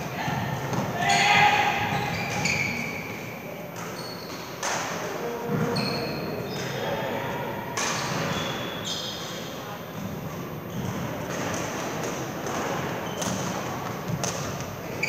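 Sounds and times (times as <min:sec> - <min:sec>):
shoes squeaking on floor: 0:01.0 - 0:04.6, 0:05.4 - 0:06.9, 0:07.8 - 0:11.8, 0:12.6 - 0:15.0.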